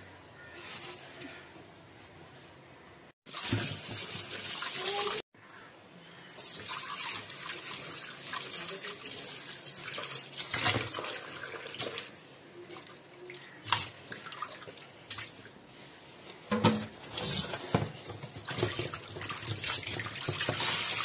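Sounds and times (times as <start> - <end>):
water splashing in a bowl: 3.3 - 5.2, 6.4 - 15.5, 17.0 - 21.0.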